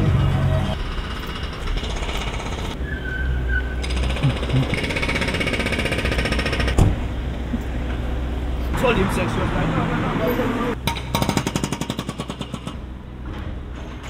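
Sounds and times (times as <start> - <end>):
short high squeal: 2.8 - 4.0
jackhammer rattling: 3.8 - 6.8.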